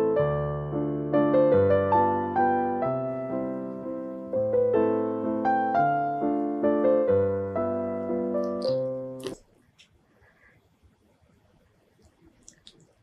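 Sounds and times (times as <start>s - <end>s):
slow keyboard melody: 0.0s - 9.2s.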